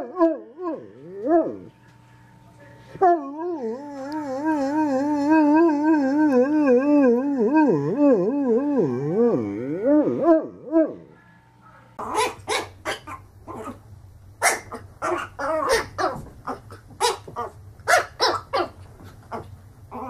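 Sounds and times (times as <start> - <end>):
dog howling whine: 0.0 - 1.8, 3.0 - 11.1
puppy yapping: 12.0 - 13.8, 14.4 - 20.0.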